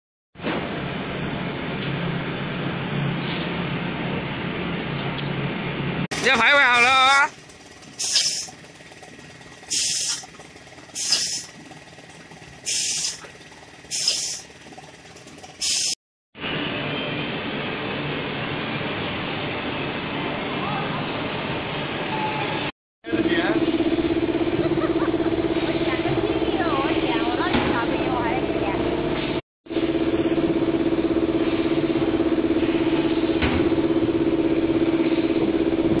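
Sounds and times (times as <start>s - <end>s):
low steady machine noise: 0.6s - 15.6s
compressed air hissing bursts: 7.9s - 8.6s, 9.7s - 10.3s, 10.9s - 11.6s, 12.6s - 13.3s, 13.9s - 14.5s, 15.6s - 16.0s.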